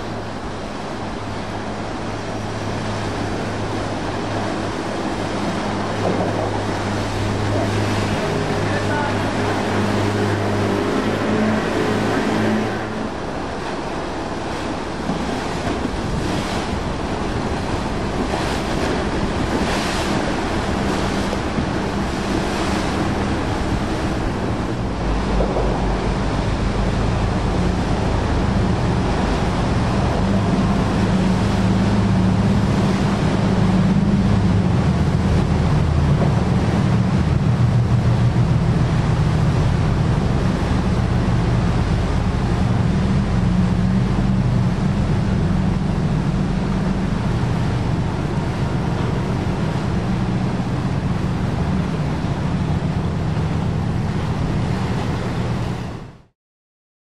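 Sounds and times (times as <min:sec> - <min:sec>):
wind buffeting microphone: 0:00.0 - 0:56.2
motorboat engines droning: 0:00.0 - 0:56.3
water current rushing: 0:00.0 - 0:56.3.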